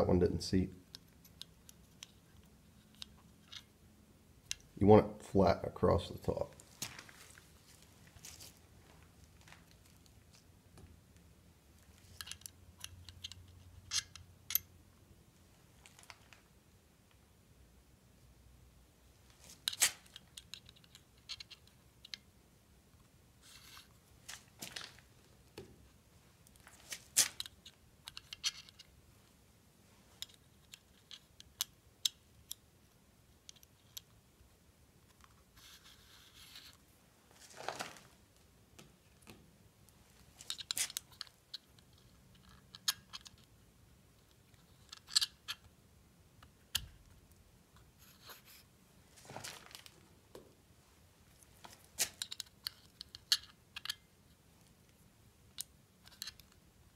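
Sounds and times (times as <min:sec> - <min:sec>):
small metallic clicks: 0:12.0 - 0:14.7, 0:26.5 - 0:28.9, 0:51.6 - 0:56.6.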